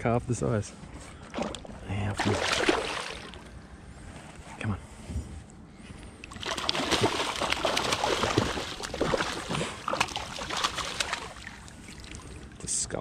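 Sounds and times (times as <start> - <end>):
fish splashing at water surface: 1.3 - 3.5, 6.3 - 12.5.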